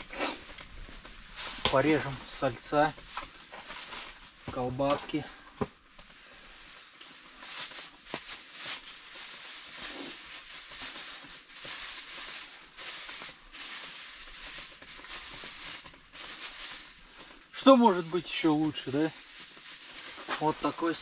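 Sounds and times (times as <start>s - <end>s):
plastic bag rustling and crinkling: 0.0s - 21.0s.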